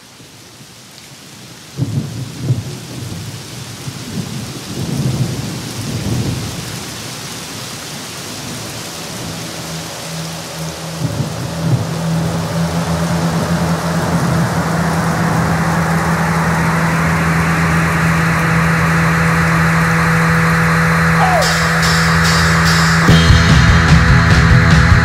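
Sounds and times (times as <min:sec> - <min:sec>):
rain pouring: 0:00.0 - 0:23.9
rolling thunder: 0:01.8 - 0:06.9
steady low hum: 0:14.0 - 0:23.1.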